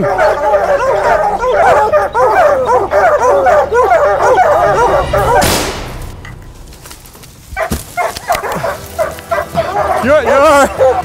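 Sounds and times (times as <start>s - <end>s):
hounds baying: 0.0s - 5.5s, 7.6s - 11.0s
thumps and crackling: 5.2s - 9.2s
air rifle shot: 5.4s - 6.2s.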